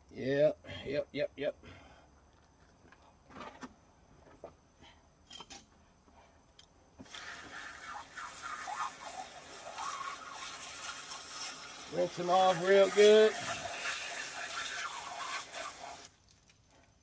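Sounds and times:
garden hose spraying: 0:07.0 - 0:17.0.

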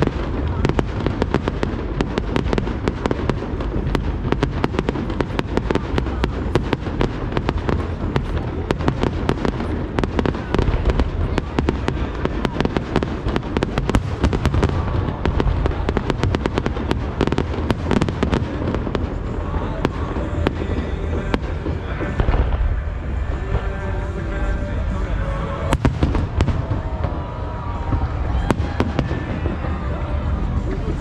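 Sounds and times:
fireworks booms rumbling: 0:00.0 - 0:31.0
fireworks crackling: 0:00.0 - 0:31.0.

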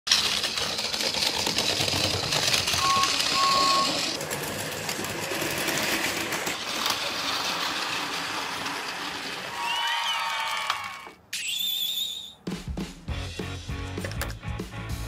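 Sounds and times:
wheels clicking over track joints: 0:00.1 - 0:10.8
toy train motors whirring: 0:00.1 - 0:11.5
beeps: 0:02.8 - 0:04.1.

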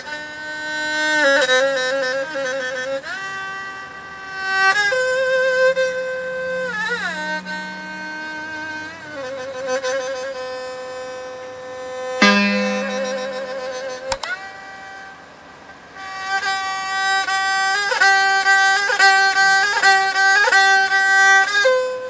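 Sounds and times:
bowed string solo melody: 0:04.4 - 0:14.8.

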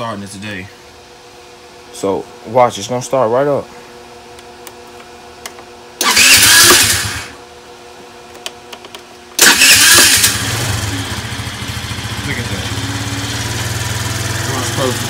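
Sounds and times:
electric starter cranking: 0:06.0 - 0:07.4, 0:09.4 - 0:15.0
scooter engine idling: 0:10.1 - 0:15.0.

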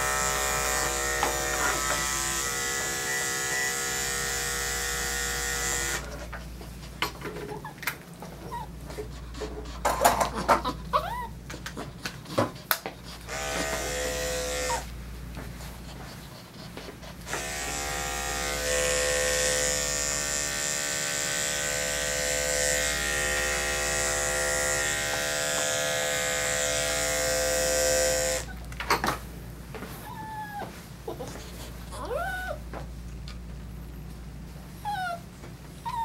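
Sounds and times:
pet blow dryer running: 0:00.0 - 0:06.2, 0:12.7 - 0:15.0, 0:17.2 - 0:28.6.

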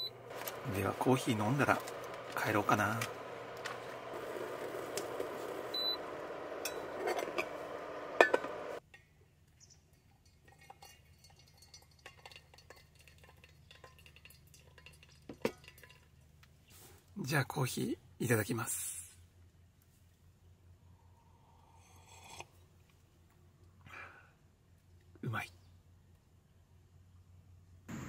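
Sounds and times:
hot water pouring: 0:00.0 - 0:08.8, 0:10.3 - 0:16.2
water heating hiss: 0:00.0 - 0:08.8
metal clicks and clinks: 0:09.9 - 0:16.1.

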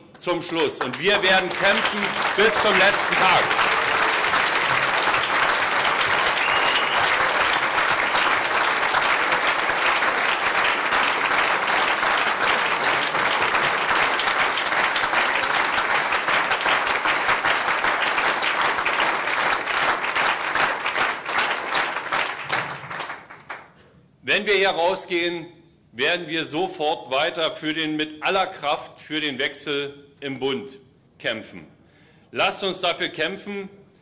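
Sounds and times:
crowd applauding: 0:00.2 - 0:23.8.

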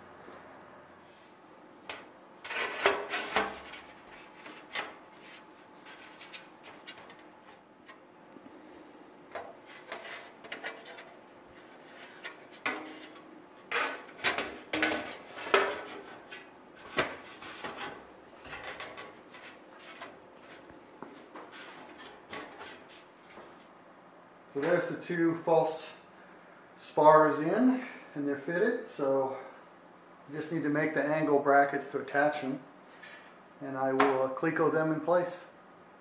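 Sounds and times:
sheet metal scraping and rubbing: 0:01.9 - 0:08.0, 0:09.4 - 0:20.6.

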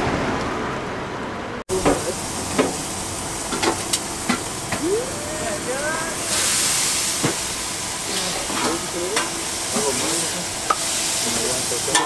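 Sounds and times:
meat sizzling on a griddle: 0:01.7 - 0:12.0.

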